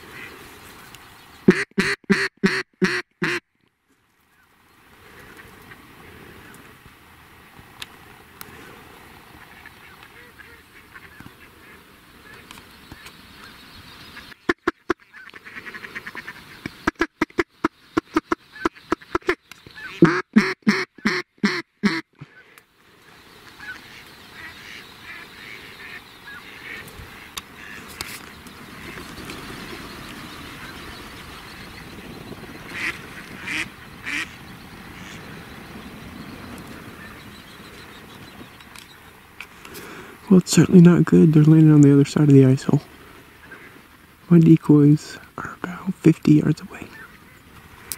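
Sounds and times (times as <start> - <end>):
ducks quacking: 0.0 - 0.5, 1.4 - 3.4, 8.4 - 38.5, 43.2 - 44.4
steady low hiss: 0.0 - 47.9
loud duck quacks: 1.5 - 3.4, 14.4 - 22.4, 32.7 - 34.4.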